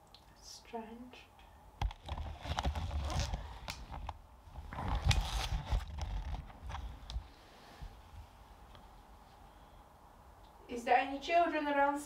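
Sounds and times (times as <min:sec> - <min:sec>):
camera handling clicks and rustles: 0:01.8 - 0:07.2.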